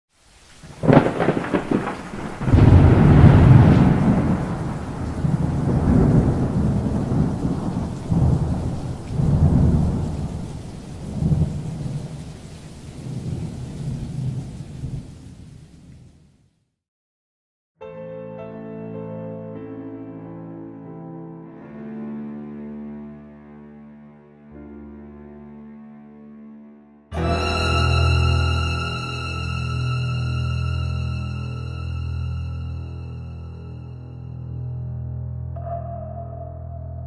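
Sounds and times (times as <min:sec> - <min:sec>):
steady rain: 0:00.1 - 0:16.5, 0:27.2 - 0:32.3
rolling thunder: 0:00.6 - 0:16.2
thunderclap: 0:00.6 - 0:16.2.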